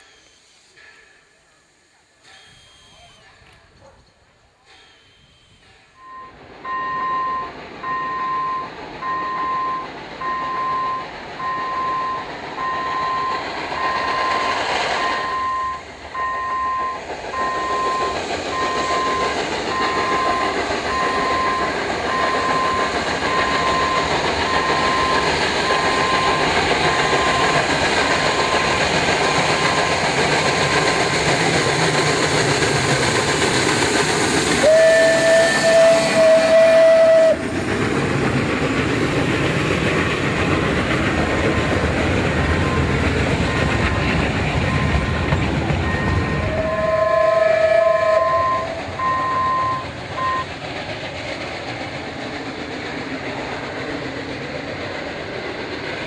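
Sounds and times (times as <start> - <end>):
steam train passing: 0.0 - 56.0
steam whistle blast: 2.2 - 3.3, 4.7 - 27.6, 34.6 - 37.4, 45.8 - 50.5
beeping: 4.8 - 27.7, 45.8 - 46.5.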